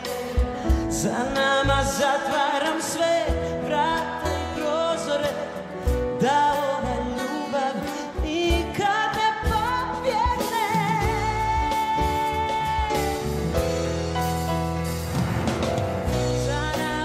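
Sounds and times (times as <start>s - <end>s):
woman singing pop ballad: 0.0s - 13.9s, 16.1s - 17.0s
live band playing: 0.0s - 17.0s.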